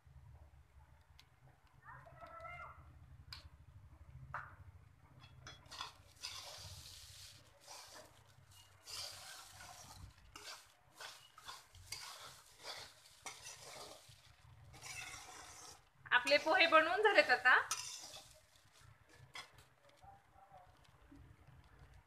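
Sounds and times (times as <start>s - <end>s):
metal spatula scraping pan: 5.2s - 19.6s.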